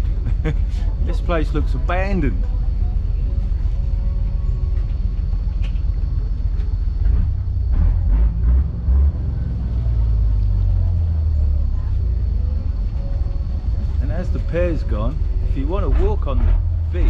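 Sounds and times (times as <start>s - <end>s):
boat engine rumbling: 0.0s - 17.0s.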